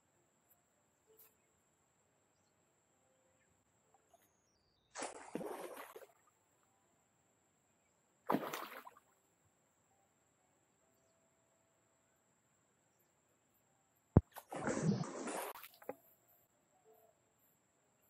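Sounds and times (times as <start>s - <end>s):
objects splashing into water: 5.0s - 6.2s, 8.3s - 9.0s, 14.2s - 16.0s.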